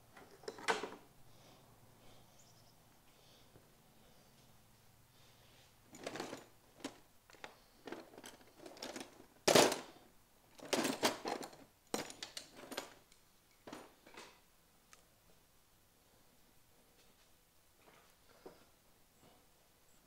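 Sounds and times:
tools and parts clattering: 0.2s - 1.0s, 5.9s - 14.4s.

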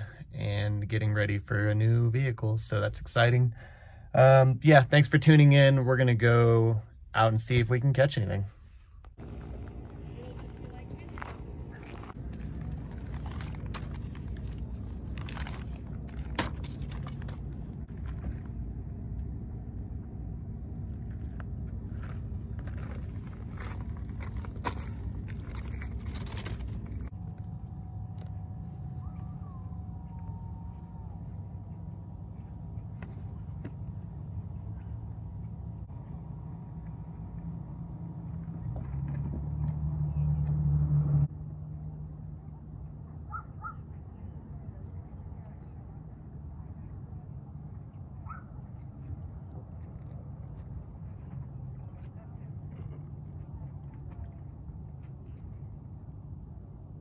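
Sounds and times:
low outdoor rumble: 0.0s - 57.0s
fishing gear clicks and knocks: 12.2s - 18.3s.

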